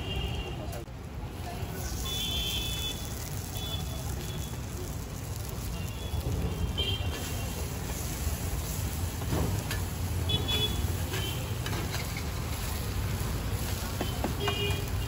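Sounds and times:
street traffic rumble: 0.0s - 15.0s
metal spatula scraping griddle: 11.1s - 12.9s.

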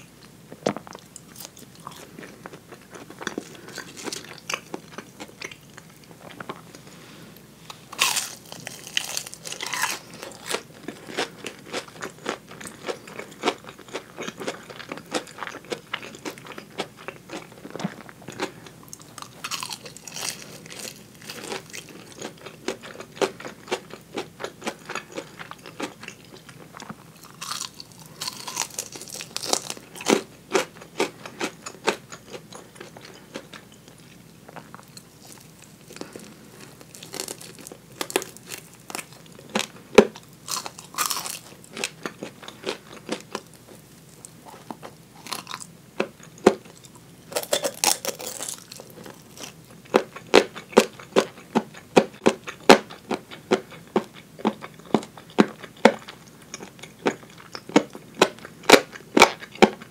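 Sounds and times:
chewing fried food: 0.1s - 6.9s, 7.7s - 59.9s
loud crunches: 7.9s - 11.2s, 19.2s - 21.8s, 27.3s - 30.6s, 40.5s - 43.2s.

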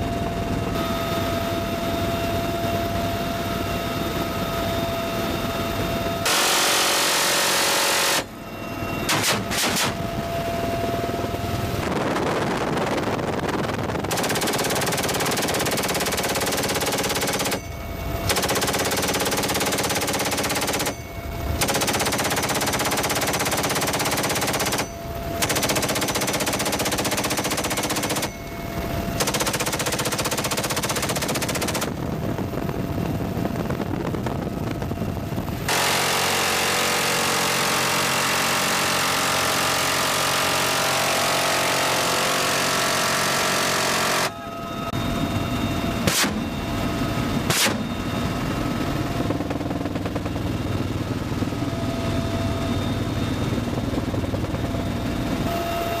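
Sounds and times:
helicopter engine and rotor hum: 0.0s - 56.0s
machine gun firing bursts: 6.3s - 8.3s, 14.1s - 17.7s, 18.3s - 21.0s, 21.6s - 28.4s, 29.2s - 32.0s, 49.3s - 50.5s.

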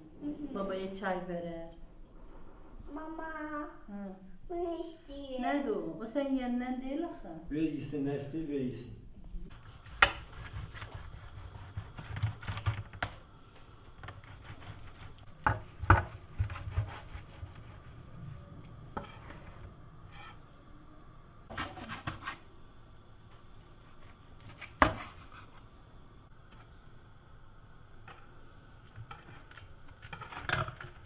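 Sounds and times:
knife scraping metal baking tray: 21.5s - 22.4s, 29.0s - 31.0s.

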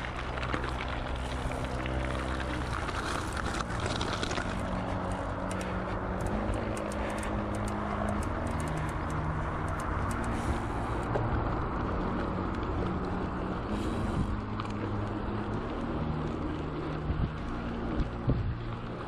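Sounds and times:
bicycle tyres rumbling: 0.0s - 19.0s
small sharp clicks: 5.0s - 10.4s
wind on microphone: 16.9s - 19.0s.

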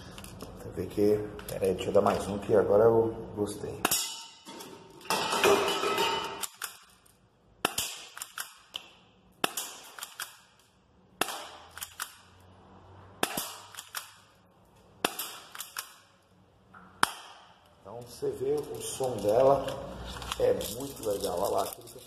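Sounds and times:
airsoft pistol shots: 7.6s - 8.6s, 13.2s - 14.1s.

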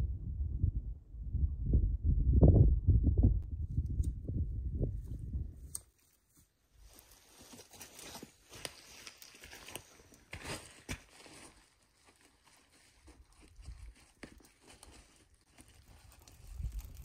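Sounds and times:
footsteps on dry grass: 4.9s - 17.0s.

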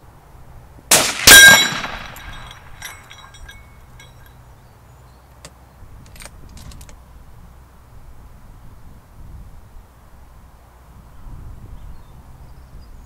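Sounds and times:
rifle shot: 0.9s - 2.5s
bullet clanging on steel plate: 0.9s - 4.3s.

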